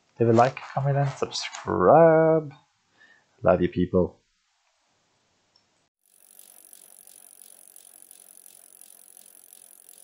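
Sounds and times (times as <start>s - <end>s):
freewheel hub ticking: 6.0s - 10.0s
spinning wheel hiss: 6.0s - 10.0s.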